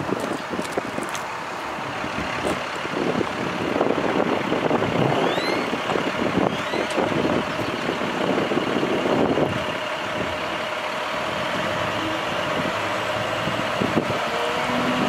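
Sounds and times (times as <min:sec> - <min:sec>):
truck diesel engine running: 0:00.0 - 0:15.0
short high rising squeaks: 0:05.2 - 0:05.7, 0:06.5 - 0:07.0.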